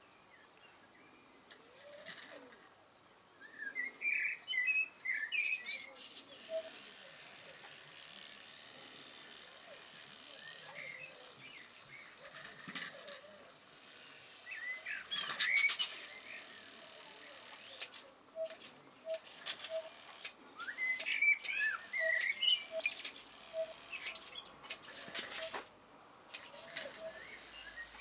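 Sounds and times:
small birds chirping: 0:00.0 - 0:28.0
repeated short bird notes: 0:01.2 - 0:02.8, 0:03.4 - 0:28.0.

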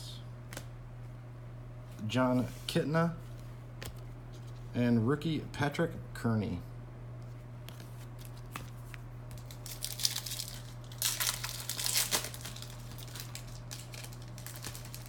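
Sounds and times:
foil wrapper tearing and crinkling: 0:09.3 - 0:15.0.

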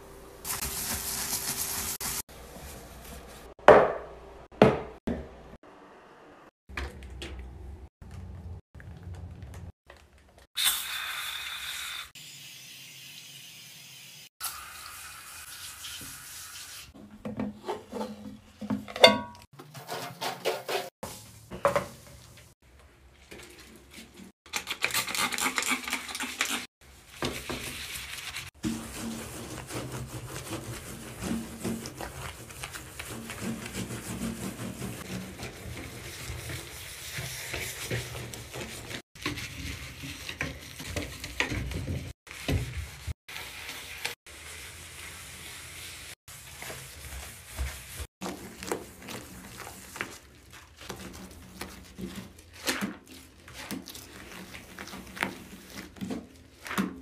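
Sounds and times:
sponge scrubbing: 0:00.4 - 0:03.6, 0:23.2 - 0:57.0.

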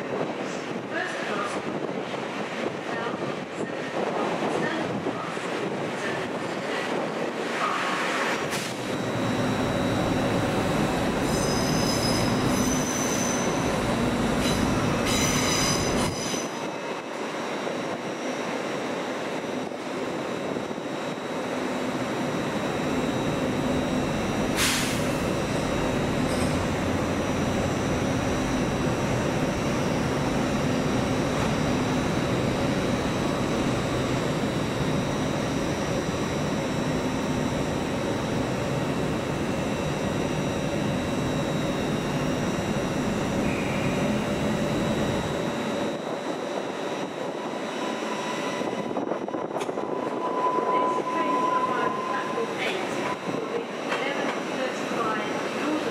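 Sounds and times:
diesel train engine drone: 0:00.0 - 0:55.9
thin whine: 0:08.5 - 0:16.6, 0:17.6 - 0:53.8.

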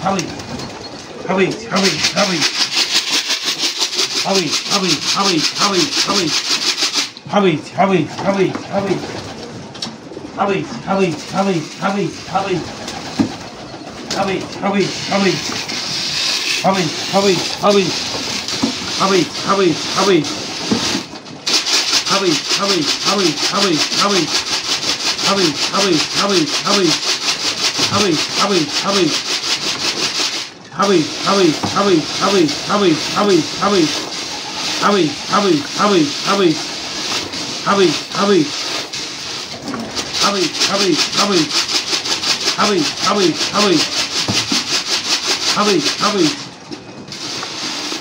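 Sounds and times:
fast even rasping: 0:00.0 - 0:46.5
pigeons cooing: 0:07.8 - 0:20.6.

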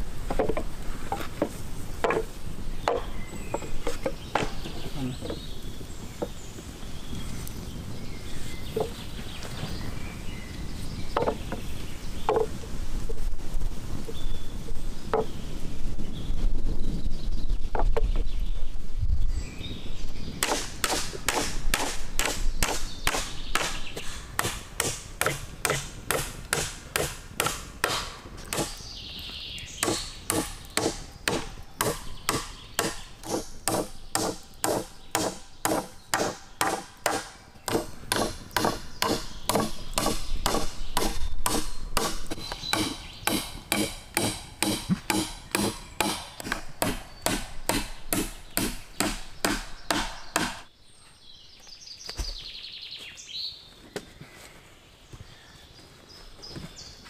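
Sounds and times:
birds chirping faintly: 0:00.0 - 0:13.3, 0:13.9 - 0:57.0
hammer knocking wood: 0:01.4 - 0:05.4, 0:29.8 - 0:42.1.

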